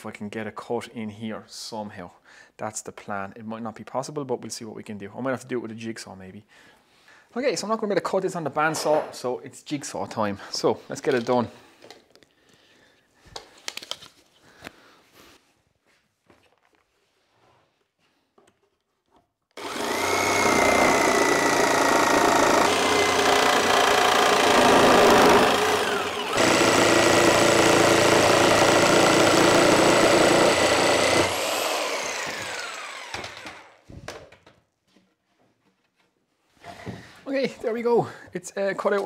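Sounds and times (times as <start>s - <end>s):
jigsaw cutting wood: 19.6s - 33.8s.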